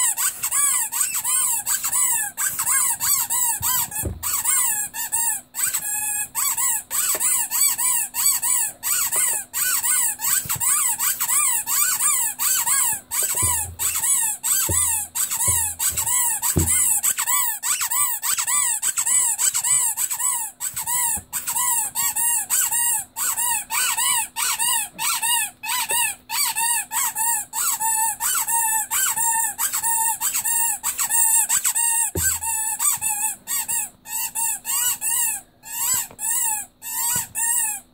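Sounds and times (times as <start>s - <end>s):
rubber squeaky doll squeaking: 0.0s - 37.9s
soft handling thumps: 3.6s - 4.5s, 12.6s - 17.1s, 32.1s - 32.6s.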